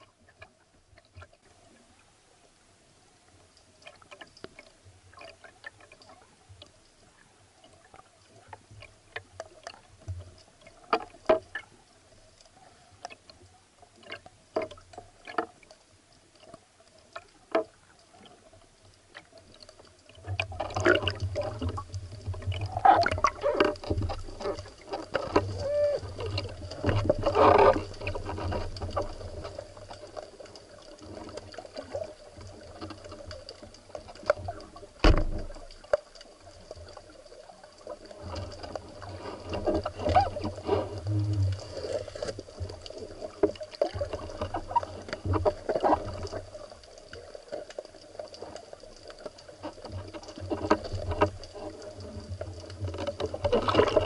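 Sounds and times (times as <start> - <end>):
sharp clicks underwater: 7.6 - 54.0
churning water noise: 16.4 - 54.0
low rumble: 41.0 - 41.8.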